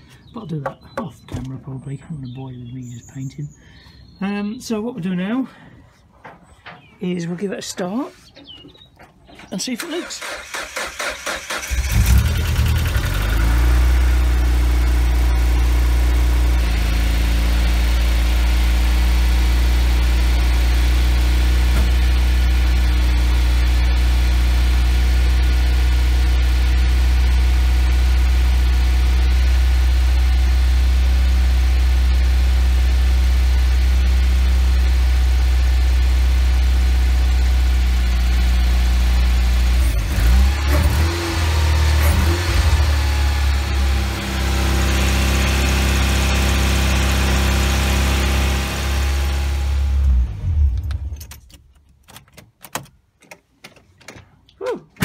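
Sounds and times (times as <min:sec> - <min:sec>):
car engine idling: 0:10.2 - 0:51.1.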